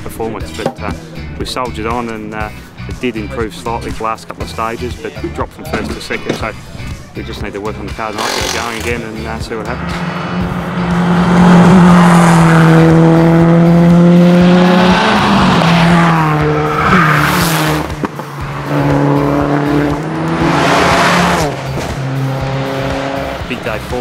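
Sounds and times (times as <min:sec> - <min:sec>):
rally car engine revving: 0:07.4 - 0:24.0.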